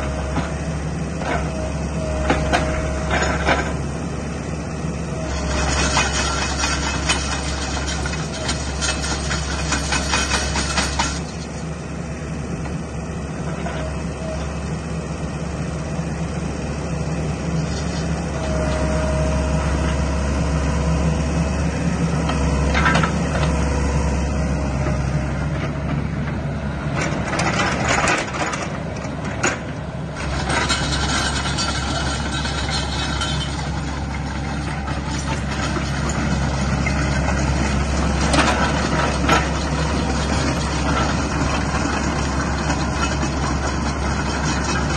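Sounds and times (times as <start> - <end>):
excavator diesel engine running: 0.0 - 44.9
steel tracks clattering: 5.3 - 11.4, 27.0 - 44.9.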